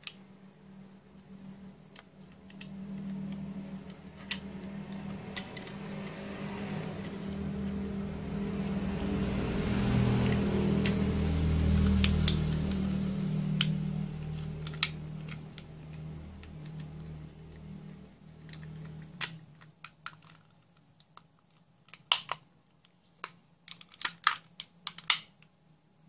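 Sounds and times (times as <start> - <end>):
low hum: 0.0 - 20.7.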